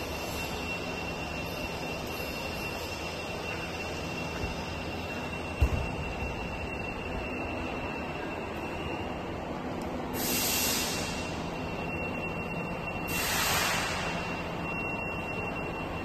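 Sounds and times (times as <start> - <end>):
factory machinery noise: 0.0 - 16.0
faint high whine: 0.0 - 16.0
hissing bursts: 13.1 - 14.1.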